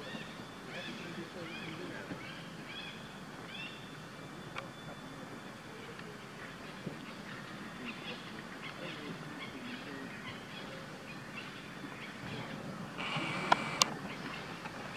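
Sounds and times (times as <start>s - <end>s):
faint bird chirps: 0.0s - 14.7s
steady high buzz: 10.9s - 14.9s
sharp clicks: 13.0s - 14.0s.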